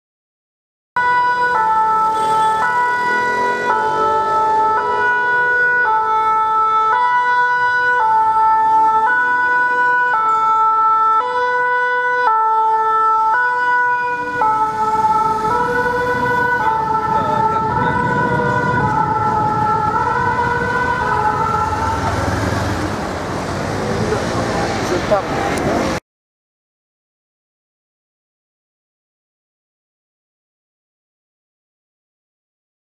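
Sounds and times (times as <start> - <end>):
two-tone siren: 1.0 - 23.0
truck engine and tyre noise: 1.0 - 26.0.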